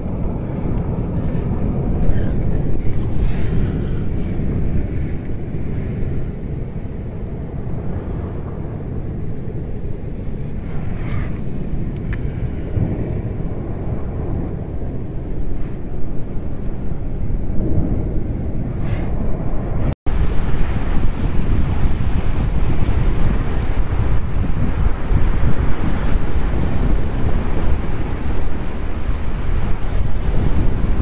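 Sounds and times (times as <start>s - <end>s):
surf on rocky shore: 0.0s - 8.9s, 19.7s - 31.0s
wind buffeting microphone: 0.0s - 31.0s.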